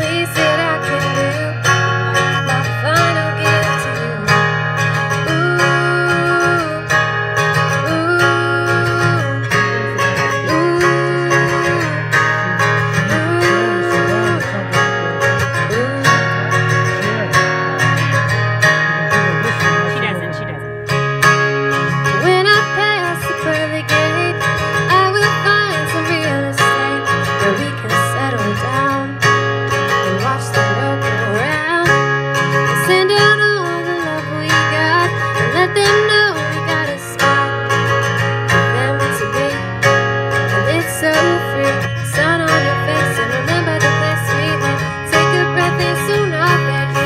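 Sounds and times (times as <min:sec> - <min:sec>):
acoustic guitar strumming: 0:00.0 - 0:47.0
person singing: 0:05.1 - 0:20.5, 0:22.1 - 0:32.0, 0:38.5 - 0:39.9, 0:40.5 - 0:47.0.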